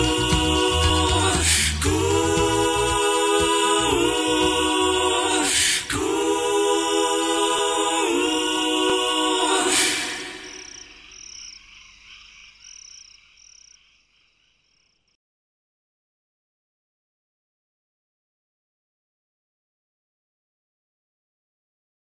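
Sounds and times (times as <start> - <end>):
low bass part: 0.0 - 3.0
voices singing held chords: 0.0 - 11.1.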